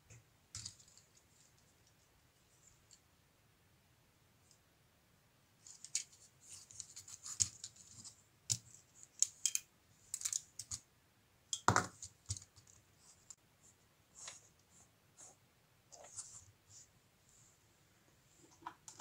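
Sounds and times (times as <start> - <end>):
plastic parts clicking and scraping: 0.5 - 1.4, 5.6 - 10.8.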